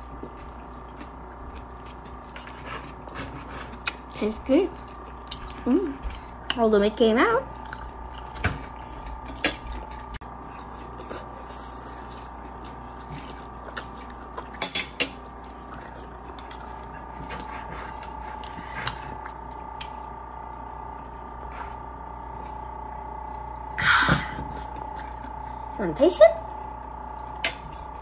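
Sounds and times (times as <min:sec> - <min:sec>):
eating clicks and smacks: 0:27.2 - 0:27.9.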